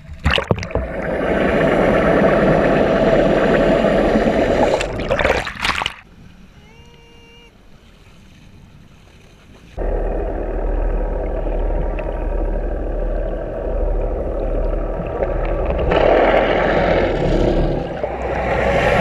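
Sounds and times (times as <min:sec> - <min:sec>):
muffled underwater rumble: 0:00.0 - 0:05.4, 0:09.8 - 0:19.0
faint boat engine drone: 0:00.8 - 0:05.2, 0:06.0 - 0:19.0.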